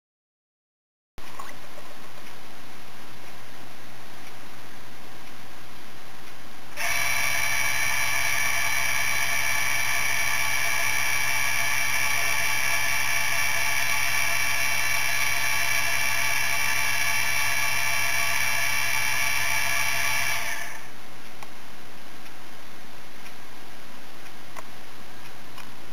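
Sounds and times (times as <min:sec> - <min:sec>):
low hum: 0:01.2 - 0:25.9
spindle high whine: 0:06.8 - 0:21.1.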